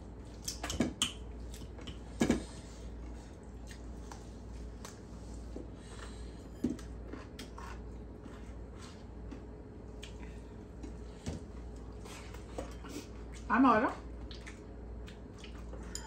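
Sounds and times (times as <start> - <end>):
chewing: 6.8 - 11.0, 14.2 - 16.0.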